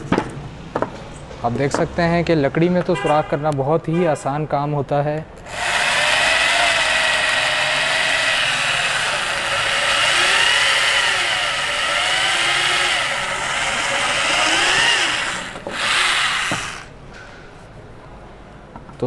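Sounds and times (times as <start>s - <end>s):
rotary hammer boring into wood: 5.4s - 16.9s.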